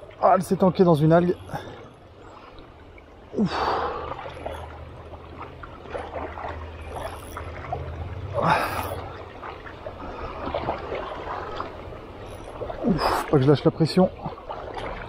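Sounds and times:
river current rumbling: 0.0s - 15.0s.

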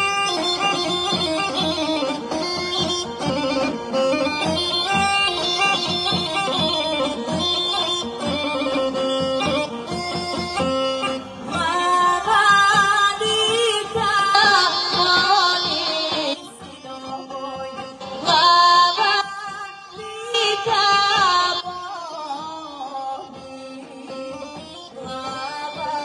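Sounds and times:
bagpipes with drone: 0.0s - 26.0s
drum keeping a beat: 0.0s - 26.0s
woman singing folk song: 11.5s - 26.0s.

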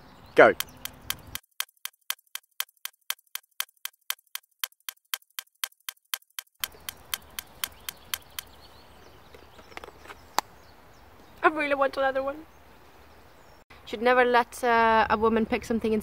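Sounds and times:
fast clock ticking: 0.6s - 8.5s.

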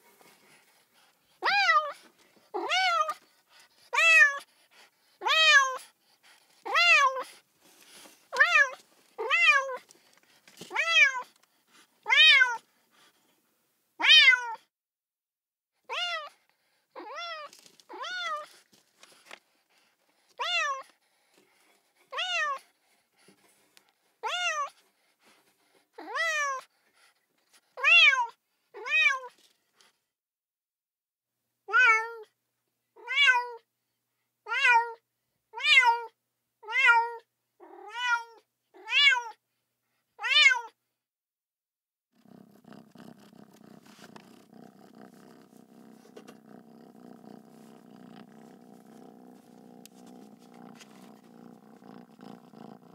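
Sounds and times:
kitten meowing: 14.0s - 14.6s, 15.9s - 16.3s.

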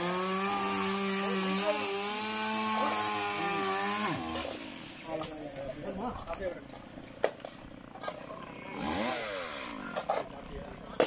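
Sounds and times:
small two-stroke engine running: 0.0s - 4.8s, 7.6s - 11.0s.

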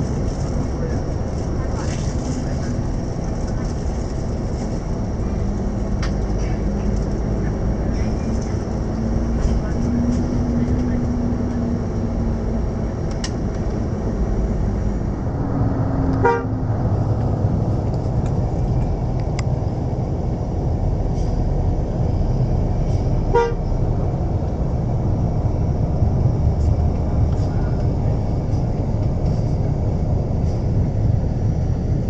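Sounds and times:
bus engine and road rumble: 0.0s - 32.0s
bus horn toots: 16.2s - 16.6s, 23.2s - 23.8s.

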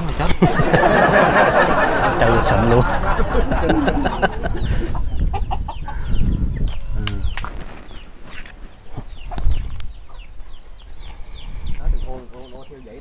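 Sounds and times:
hen clucking: 0.8s - 6.4s
chicks peeping: 2.2s - 13.0s.

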